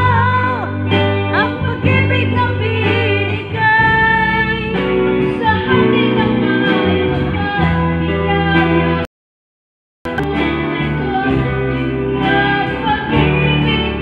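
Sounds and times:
woman singing into microphone: 0.0s - 9.0s, 10.1s - 14.0s
electric guitar: 0.0s - 9.1s, 10.1s - 14.0s.

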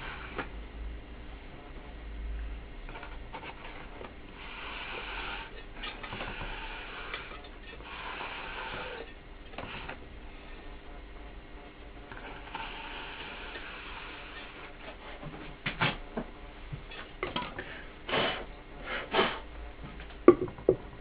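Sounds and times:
scraping on metal rim: 2.9s - 10.0s
low hum: 9.0s - 21.0s.

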